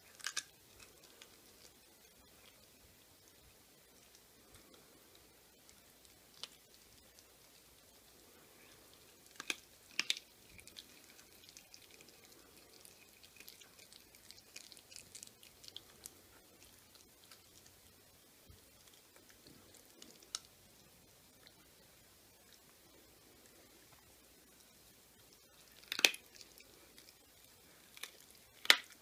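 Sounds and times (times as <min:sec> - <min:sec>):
bone cracking: 0:00.0 - 0:01.8, 0:09.2 - 0:17.6, 0:25.6 - 0:29.0
puppy gnawing on bone: 0:00.0 - 0:20.6, 0:24.6 - 0:29.0.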